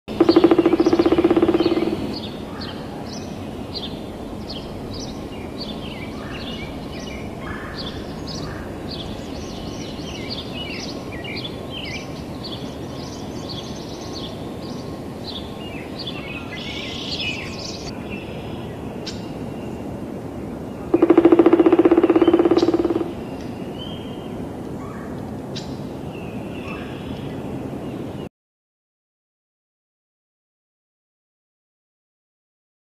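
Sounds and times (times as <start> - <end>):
woodpecker drumming on tree: 0.1 - 12.2, 20.9 - 23.6
small birds chirping: 0.1 - 28.1
low background noise: 0.1 - 28.3.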